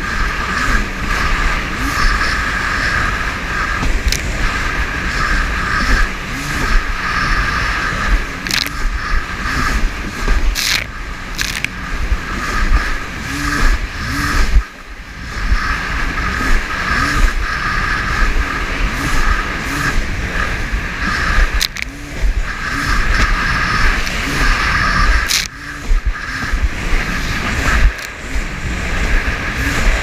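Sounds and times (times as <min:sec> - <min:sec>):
small boat engine running hard: 0:00.0 - 0:30.0
wind rumble on microphone: 0:00.0 - 0:30.0
sharp click: 0:25.3 - 0:25.6.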